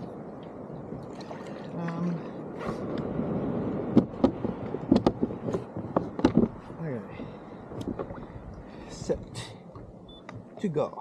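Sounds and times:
paddle strokes in water: 0:00.0 - 0:10.7
water splashing and gurgling: 0:00.0 - 0:11.0
paddle knocking on hull: 0:03.9 - 0:06.7, 0:07.8 - 0:08.3.

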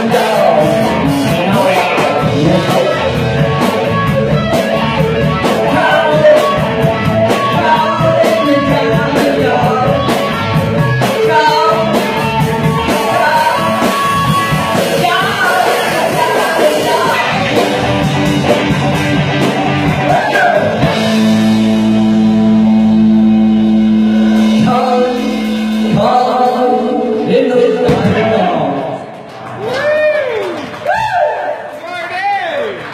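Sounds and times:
lead vocal singing: 0:00.0 - 0:18.7, 0:19.9 - 0:21.2, 0:24.2 - 0:29.0
bass guitar: 0:00.0 - 0:30.3
electric guitar: 0:00.0 - 0:31.3
drums: 0:00.0 - 0:32.9.

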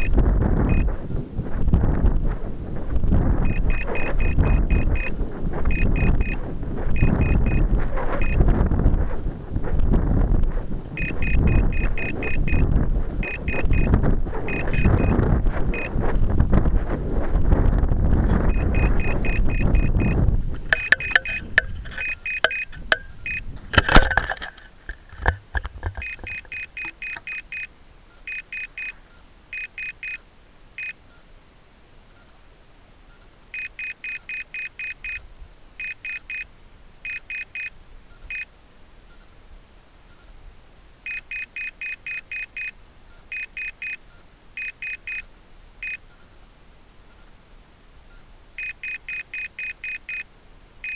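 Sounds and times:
altimeter short high beeps: 0:00.0 - 0:01.2, 0:03.4 - 0:08.4, 0:11.0 - 0:16.3, 0:18.4 - 0:24.2, 0:26.0 - 0:30.2, 0:33.1 - 0:35.2, 0:35.8 - 0:36.5, 0:37.1 - 0:38.5, 0:41.1 - 0:46.4, 0:48.1 - 0:50.9
rocket landing thumps and rattles: 0:17.5 - 0:27.3.

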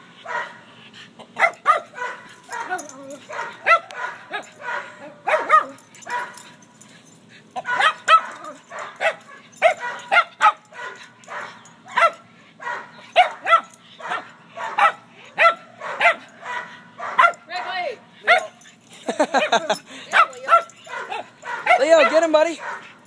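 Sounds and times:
dog yapping: 0:01.4 - 0:06.5, 0:07.6 - 0:17.4, 0:20.2 - 0:23.0.

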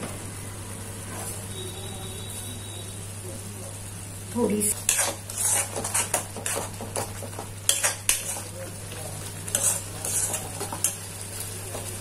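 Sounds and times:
metal spoon scraping a pot: 0:04.8 - 0:08.5, 0:09.5 - 0:11.0.

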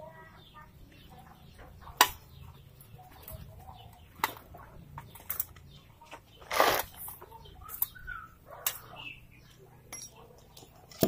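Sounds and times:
rough scraping: 0:06.2 - 0:07.3.

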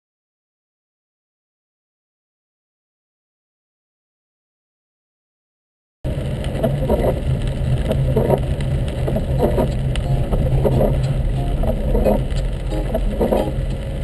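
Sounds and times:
engine and road drone: 0:06.1 - 0:14.0
rain hissing on car: 0:06.1 - 0:14.0
windscreen wipers sweeping: 0:06.1 - 0:14.0.

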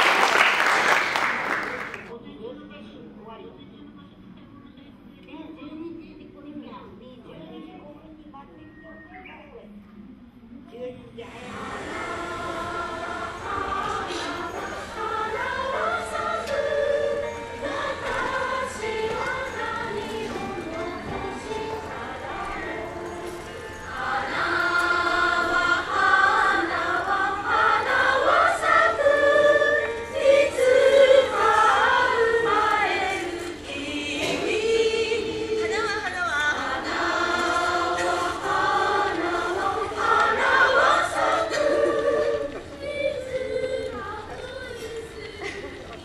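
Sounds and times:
choir singing: 0:11.2 - 0:46.0.

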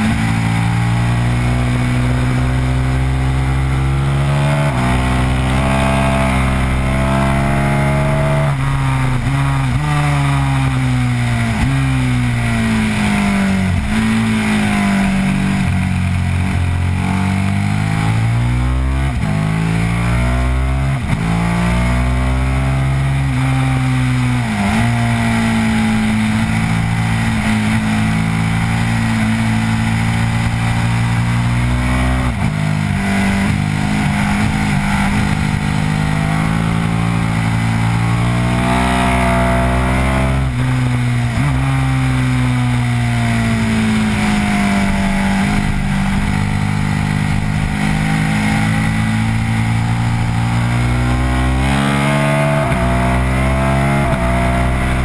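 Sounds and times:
motorcycle engine pulling hard: 0:22.6 - 0:55.0.

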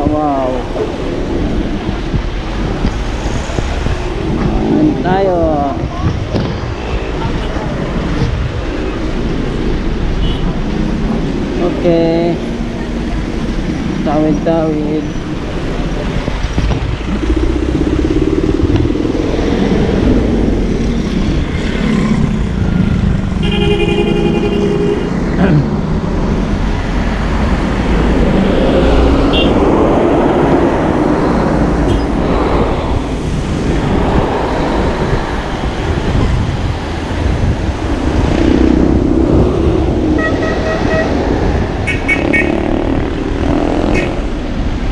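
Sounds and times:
vehicles passing on wet road: 0:00.0 - 0:44.9
vehicle horn: 0:23.4 - 0:25.2, 0:29.3 - 0:29.6, 0:40.2 - 0:41.1, 0:41.8 - 0:42.6, 0:43.9 - 0:44.2.

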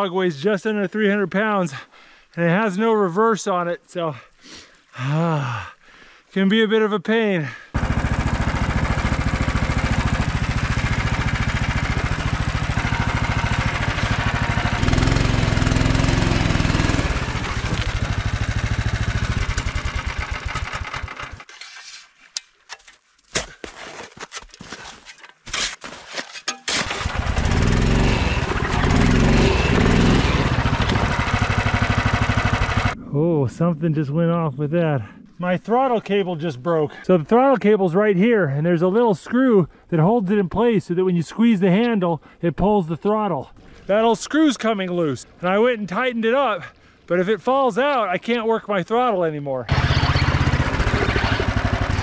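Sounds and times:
small engine running and revving: 0:07.8 - 0:21.5, 0:26.9 - 0:33.0, 0:49.7 - 0:52.0.

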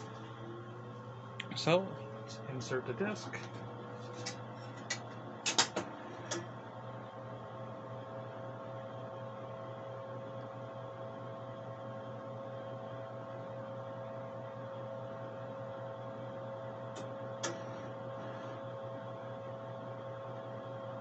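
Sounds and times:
computer hum: 0:00.0 - 0:21.0
faint electronic whine: 0:16.2 - 0:20.8
disk drive door clicks: 0:17.0 - 0:17.7.

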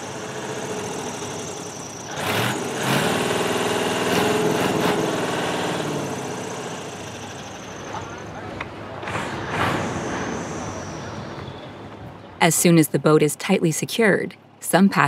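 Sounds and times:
diesel boat engine running: 0:00.0 - 0:11.2.

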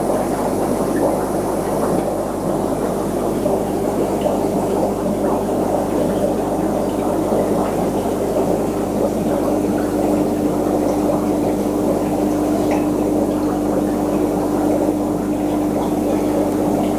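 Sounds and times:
burble of moving water: 0:00.0 - 0:16.9
low pump hum: 0:00.0 - 0:16.9.

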